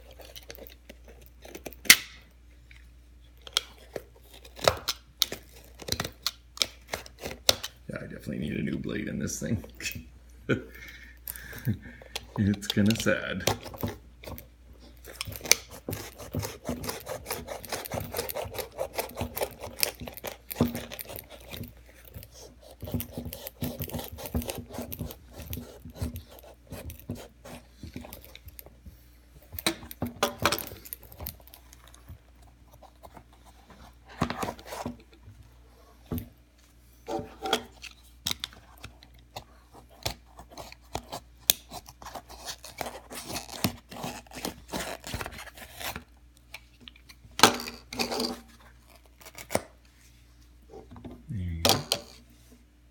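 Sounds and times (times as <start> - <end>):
knife sawing through leather: 15.6 - 21.6, 22.2 - 27.7.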